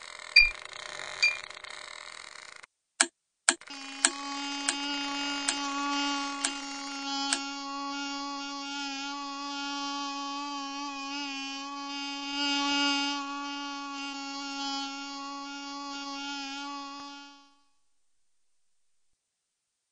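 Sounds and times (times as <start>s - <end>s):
bee buzzing in flight: 3.6s - 17.8s.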